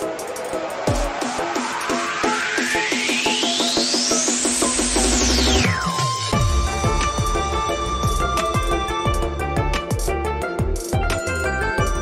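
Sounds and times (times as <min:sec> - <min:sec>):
background music with steady beat: 0:00.0 - 0:12.0
kick drum: 0:00.9 - 0:01.4, 0:06.3 - 0:12.0.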